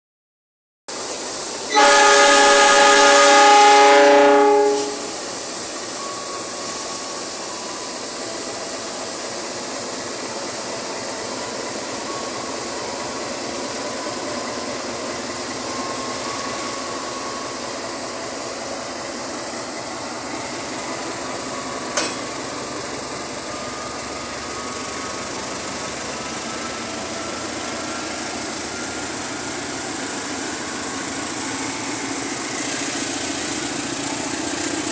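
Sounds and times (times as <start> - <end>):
train running on rails: 0.9 - 34.9
locomotive horn blast: 1.7 - 5.3.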